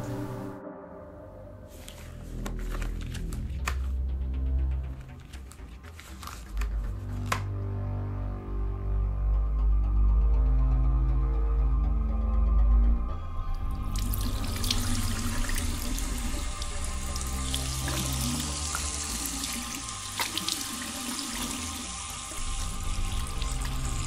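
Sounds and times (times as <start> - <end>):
tap water running into sink: 13.9 - 24.0
water splashes: 13.9 - 24.0.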